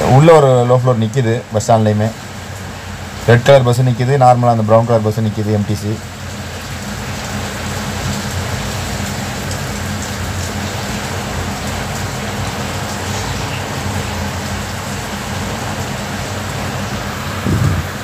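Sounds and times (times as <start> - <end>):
low engine hum: 6.4 - 18.0.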